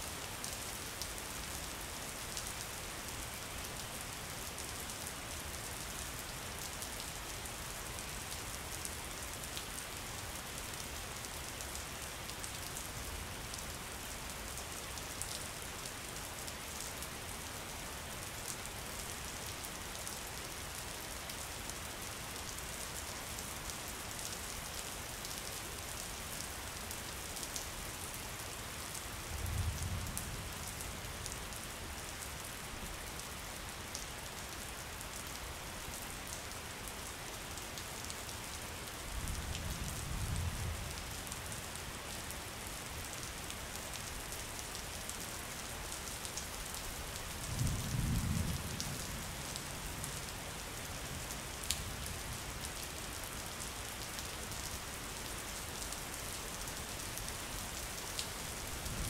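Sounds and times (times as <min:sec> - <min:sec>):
rain falling on water and foliage: 0:00.0 - 0:59.0.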